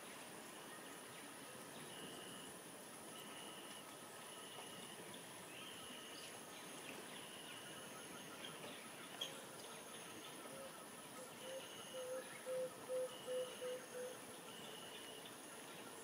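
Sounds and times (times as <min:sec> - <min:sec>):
bird chirps: 0:07.2 - 0:15.4.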